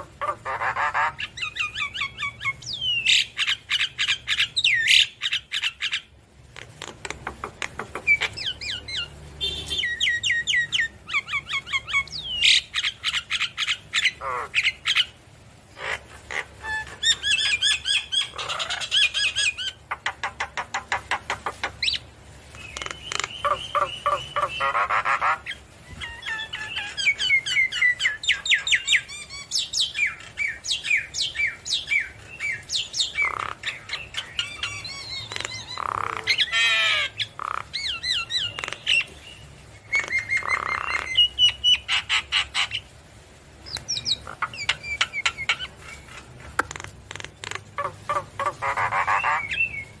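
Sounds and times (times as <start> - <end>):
bird singing whistles and squawks: 48.1 - 50.0.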